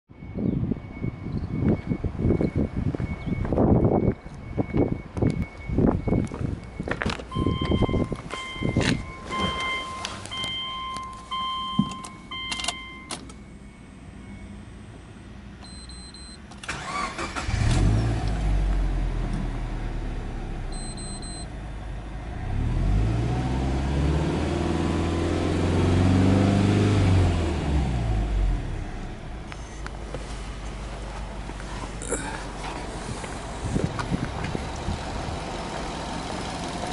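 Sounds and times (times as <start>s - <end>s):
short electronic beeps: 0.1s - 14.6s, 15.6s - 16.4s, 20.7s - 21.5s
car engine cranking and idling: 4.4s - 36.9s
engine revving: 16.7s - 20.5s, 22.2s - 29.1s.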